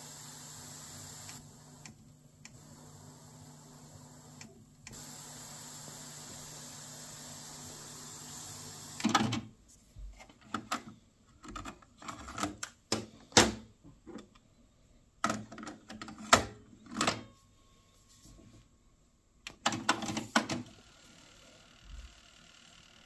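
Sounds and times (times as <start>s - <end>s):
tape hiss with low hum: 0.0s - 9.8s.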